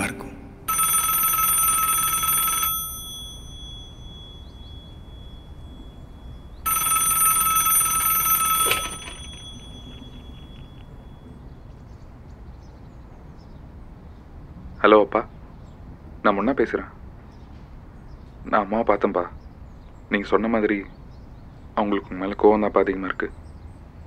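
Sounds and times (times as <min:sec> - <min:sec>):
telephone ringing: 0:00.0 - 0:11.7.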